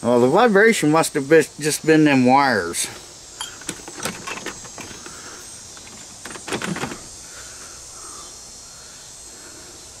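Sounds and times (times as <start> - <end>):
motor parts clicking and knocking: 3.4 - 7.1.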